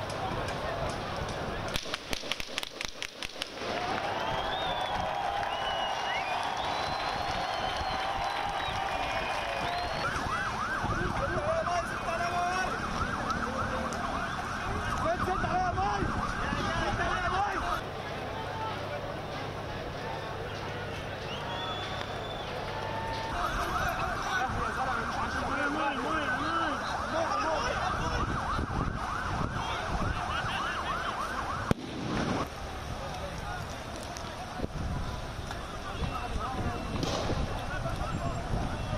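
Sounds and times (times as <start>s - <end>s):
street background noise: 0.0s - 38.9s
emergency siren rising and falling: 3.6s - 17.8s, 21.8s - 32.5s.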